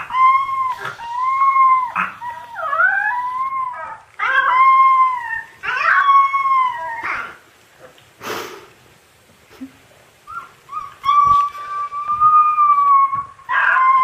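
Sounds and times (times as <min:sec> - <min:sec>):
puppy howling: 0:00.0 - 0:07.4, 0:10.3 - 0:14.0.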